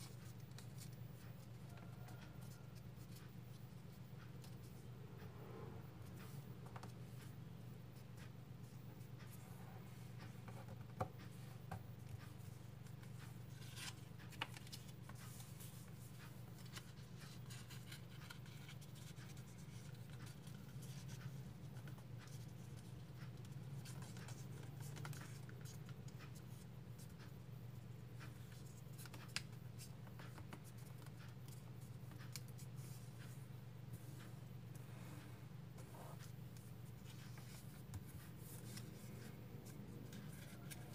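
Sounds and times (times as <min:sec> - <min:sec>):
steady low hum: 0:00.0 - 0:40.9
paper rustling and scratching: 0:12.0 - 0:27.2, 0:35.8 - 0:40.9.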